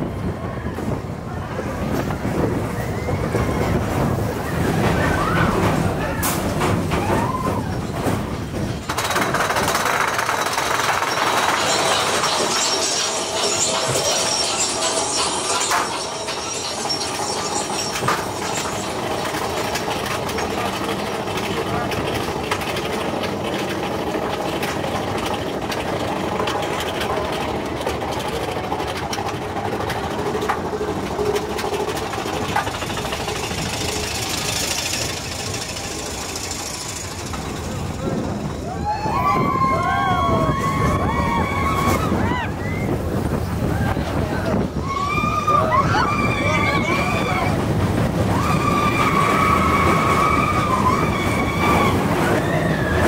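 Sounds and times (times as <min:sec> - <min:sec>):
roller coaster wheels clattering: 0:00.0 - 0:53.0
high-pitched squeal: 0:09.9 - 0:22.2.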